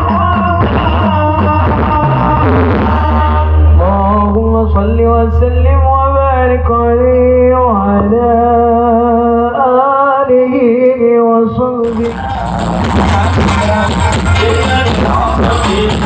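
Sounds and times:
heavy bass hum: 0:00.0 - 0:09.7, 0:11.6 - 0:16.0.

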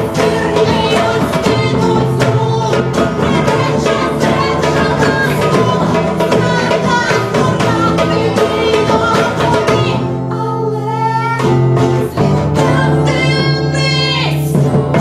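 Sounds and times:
hand drum beating: 0:00.0 - 0:10.4
acoustic guitars strummed: 0:00.0 - 0:15.0
women singing: 0:00.0 - 0:15.0.

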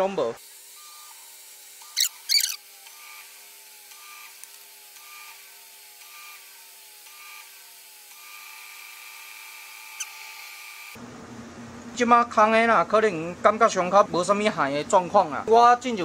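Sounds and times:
sharp chirps: 0:01.8 - 0:02.6, 0:10.0 - 0:10.2
washing machine whine: 0:09.8 - 0:16.0.

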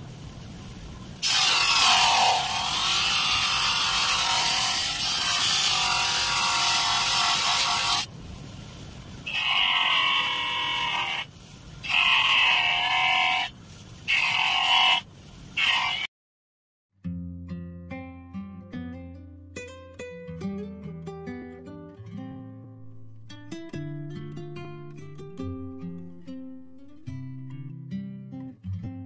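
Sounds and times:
buffing wheel polishing metal: 0:01.2 - 0:08.1.

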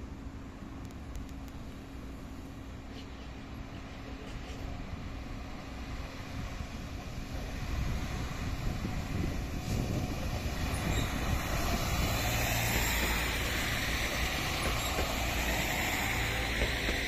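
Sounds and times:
low train hum: 0:00.0 - 0:17.0
train passing: 0:00.0 - 0:17.0
wheels rolling on rails: 0:08.9 - 0:17.0.

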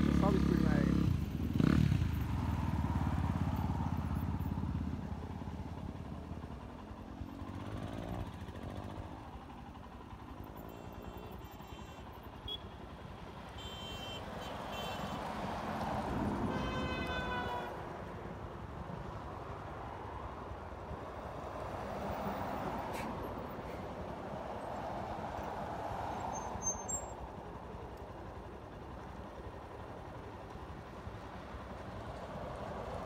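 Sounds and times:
distant road traffic: 0:00.0 - 0:33.0.

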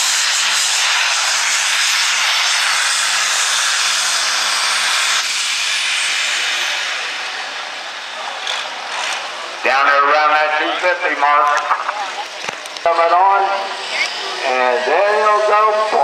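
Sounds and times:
diesel engine running flat out: 0:00.0 - 0:10.9.

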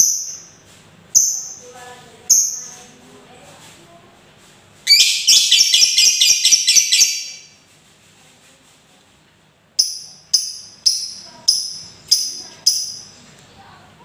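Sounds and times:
bird chattering trill: 0:01.2 - 0:01.6, 0:04.9 - 0:07.5, 0:09.8 - 0:13.2
shrill sharp bird calls: 0:04.9 - 0:07.5.

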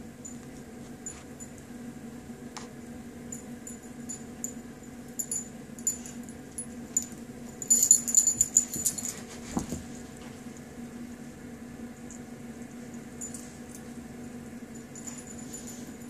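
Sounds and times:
dog collar tags jingling: 0:03.4 - 0:09.3.

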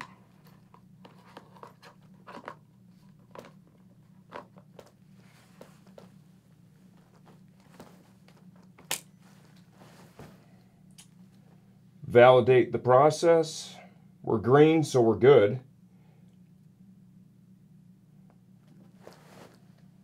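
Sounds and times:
faint fabric rustling: 0:04.7 - 0:10.7, 0:18.6 - 0:20.0.

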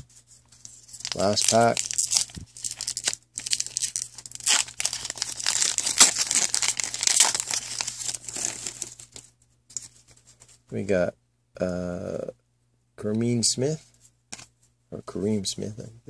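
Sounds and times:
foil wrapper crinkling: 0:00.6 - 0:09.2.

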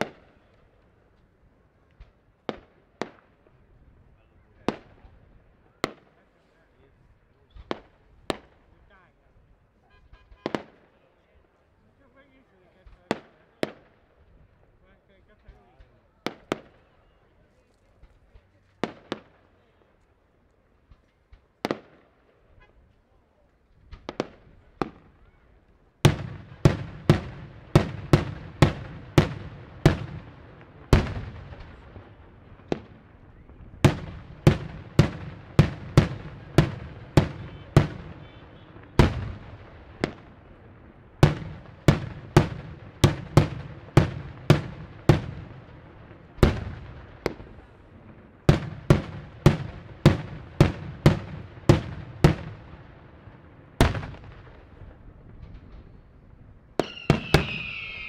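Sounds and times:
fireworks bangs: 0:00.0 - 0:00.8, 0:23.8 - 0:58.0.

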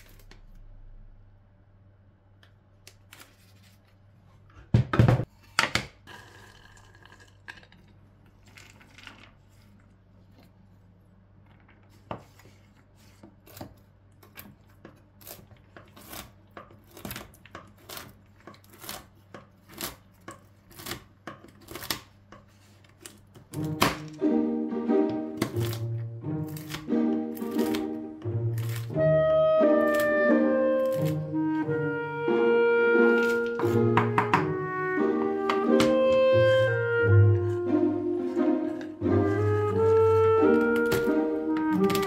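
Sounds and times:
knife chopping on wooden board: 0:33.6 - 0:34.6.

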